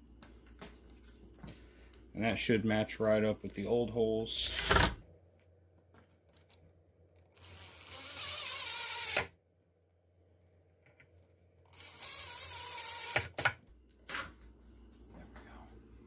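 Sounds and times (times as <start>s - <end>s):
cordless drill motor whine: 7.4s - 9.4s, 11.7s - 13.5s.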